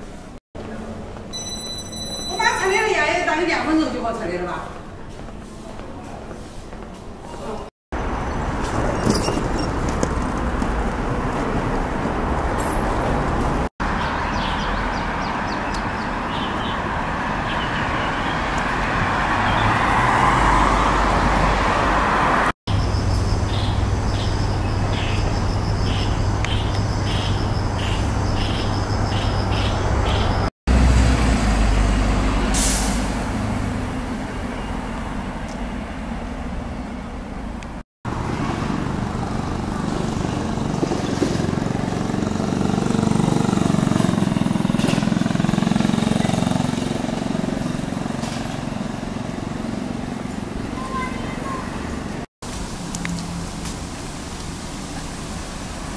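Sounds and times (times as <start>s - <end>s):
street traffic: 0.0s - 55.9s.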